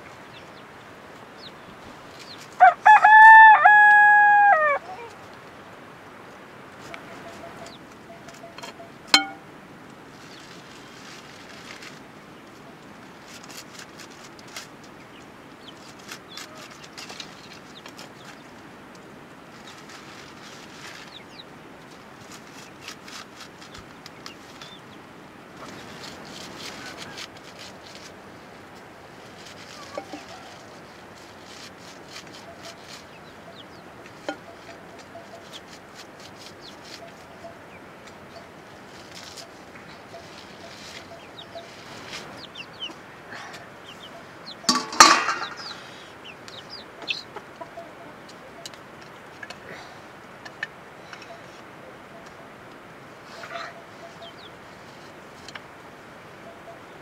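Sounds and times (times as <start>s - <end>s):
faint steady hiss: 0.0s - 32.4s
high chirps: 8.1s - 9.5s
sickle blade chopping leaves: 8.4s - 9.4s, 15.8s - 18.4s, 25.6s - 28.2s, 29.3s - 33.1s
steel pot lid clanging: 8.6s - 9.4s, 44.7s - 45.7s
chickens chirping: 19.6s - 21.5s, 29.4s - 35.8s, 36.4s - 49.6s, 50.6s - 52.6s, 53.2s - 55.1s.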